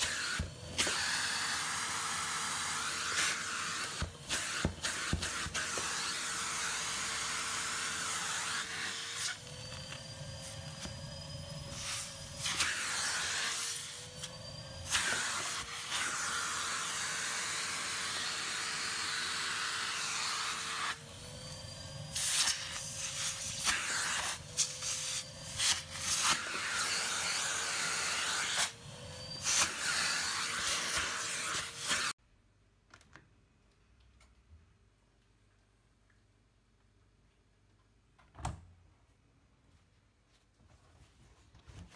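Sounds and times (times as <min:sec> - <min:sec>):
vacuum cleaner running: 0:00.0 - 0:32.1.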